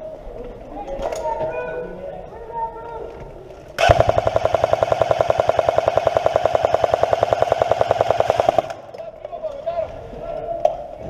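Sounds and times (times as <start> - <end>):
airsoft gun full-auto rattle: 3.8 - 9.0.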